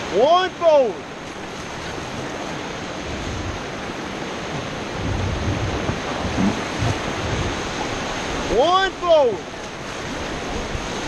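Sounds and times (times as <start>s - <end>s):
whitewater rushing: 0.0s - 11.0s
low thumps: 4.5s - 8.2s.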